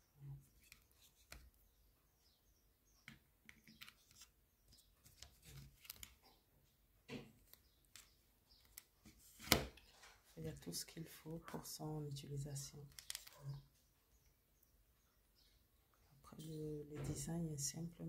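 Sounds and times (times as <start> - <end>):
light clicks and rustles of handling: 3.0 - 6.4, 12.8 - 13.8.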